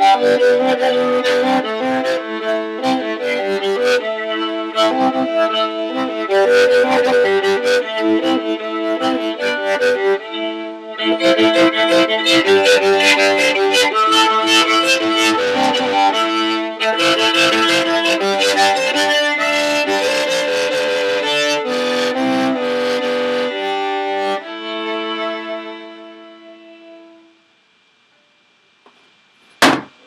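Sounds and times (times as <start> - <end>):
solo violin folk tune: 0.0 - 27.4
sharp knock: 29.6 - 30.0.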